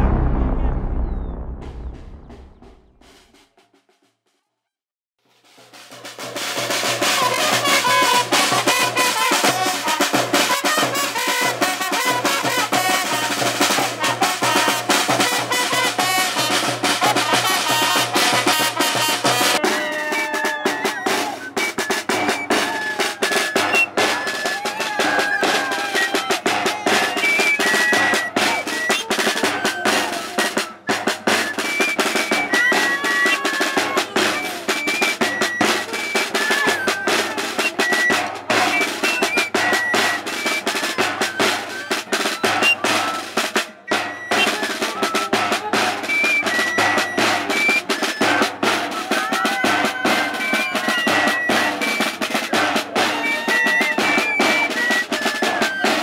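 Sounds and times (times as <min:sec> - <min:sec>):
drum beaten fast: 0:00.0 - 0:04.1, 0:05.2 - 0:56.0
flute playing high notes: 0:06.5 - 0:56.0.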